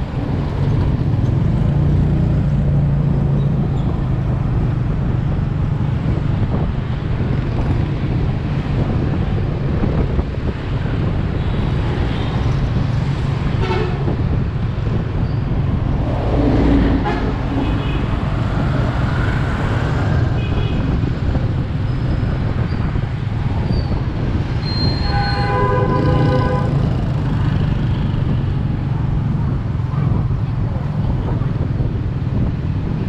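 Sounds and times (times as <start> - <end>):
motorbike riding rumble: 0.0 - 33.0
motorbike horns beeping: 24.7 - 26.8.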